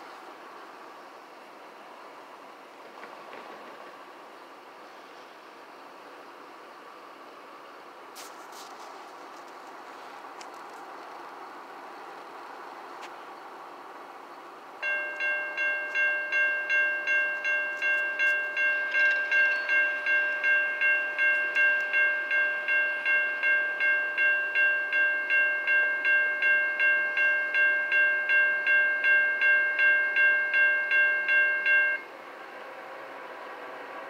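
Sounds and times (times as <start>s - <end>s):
railroad crossing bell ringing: 14.8s - 32.1s.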